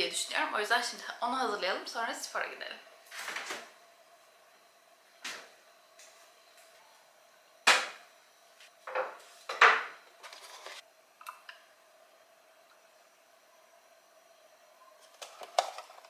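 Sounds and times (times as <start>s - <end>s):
kitchen items knocking and clattering: 8.8s - 10.8s.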